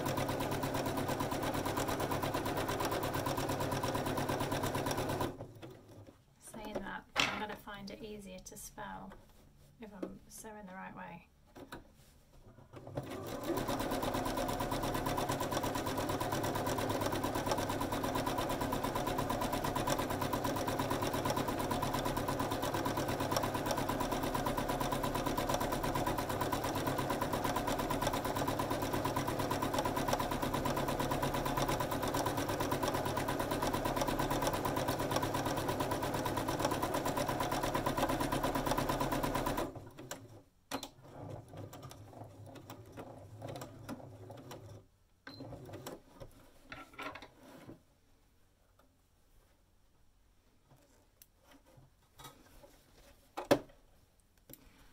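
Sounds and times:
electric sewing machine running: 0:00.0 - 0:05.4, 0:13.0 - 0:39.8.

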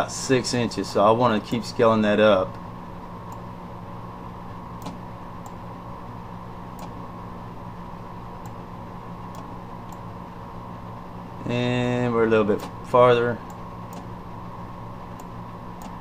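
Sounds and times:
low electrical hum: 0:00.0 - 0:16.0
computer mouse clicks: 0:04.8 - 0:05.6, 0:13.5 - 0:14.1.

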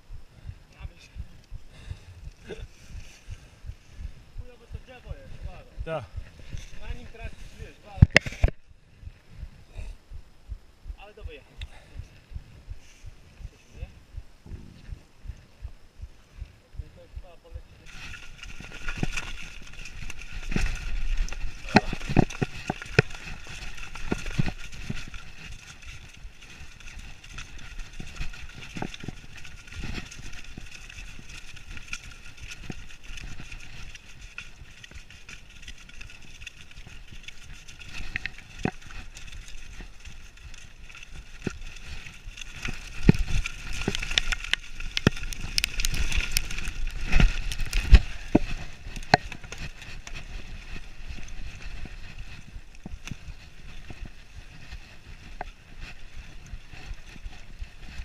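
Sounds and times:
bike riding noise on dirt trail: 0:00.0 - 0:10.2, 0:10.8 - 0:58.0
bike rattling and knocking over bumps: 0:17.8 - 0:58.0.

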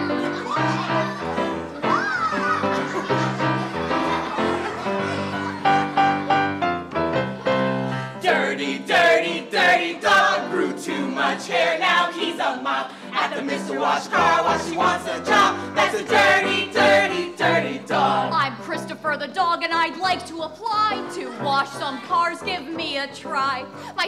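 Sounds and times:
musical accompaniment: 0:00.0 - 0:24.0
group singing upbeat song: 0:08.1 - 0:18.9.

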